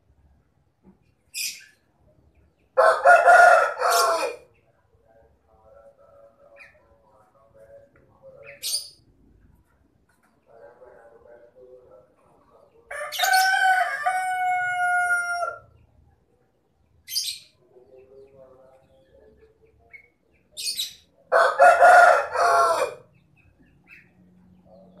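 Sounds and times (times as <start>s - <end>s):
high bird chirps: 1.2s - 2.6s, 17.0s - 17.6s, 19.8s - 21.2s
rooster crowing: 2.8s - 4.4s, 12.9s - 15.7s, 21.3s - 23.0s.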